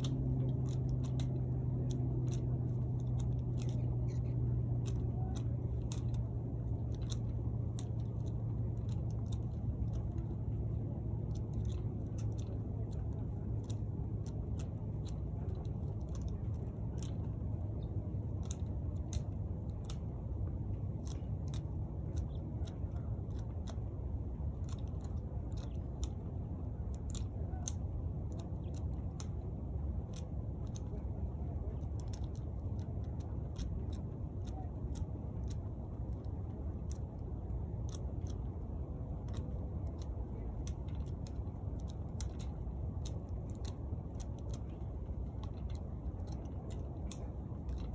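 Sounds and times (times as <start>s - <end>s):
pruning shears snipping: 0.0s - 23.8s, 30.1s - 47.9s
steady low rumble: 0.0s - 47.9s.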